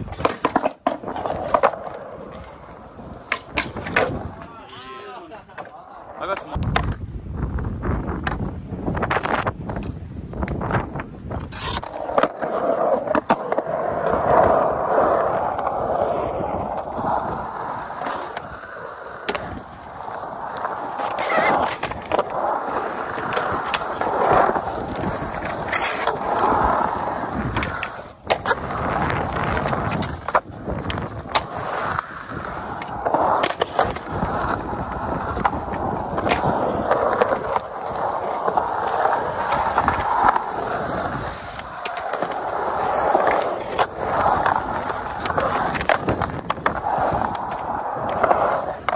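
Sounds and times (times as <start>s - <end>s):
skateboard clacks and knocks: 0.0s - 5.8s
skateboard wheels rolling on concrete: 0.0s - 48.9s.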